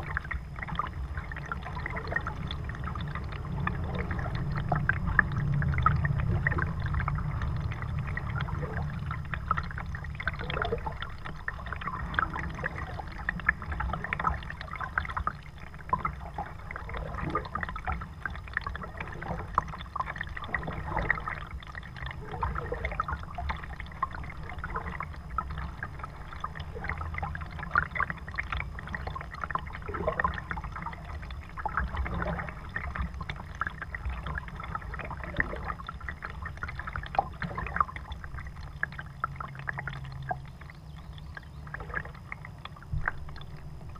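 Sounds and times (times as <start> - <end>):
low rumble: 0.0 - 26.4
water lapping at hull: 0.0 - 43.9.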